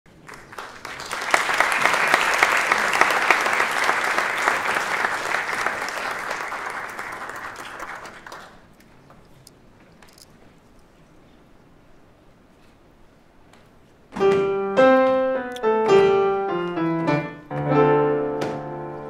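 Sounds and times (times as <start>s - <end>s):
audience applauding: 0.1s - 8.9s.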